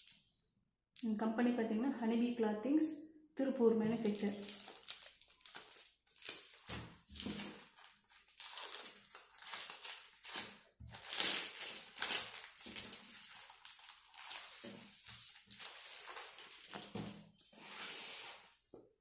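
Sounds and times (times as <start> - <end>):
plastic bag crinkling: 3.9 - 17.2.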